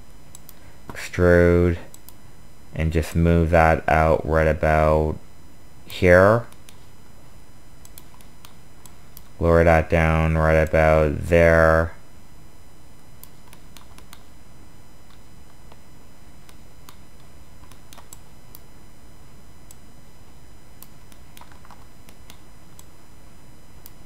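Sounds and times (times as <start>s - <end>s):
low steady hum: 0.0s - 24.0s
mouse and keyboard clicks: 13.2s - 14.3s.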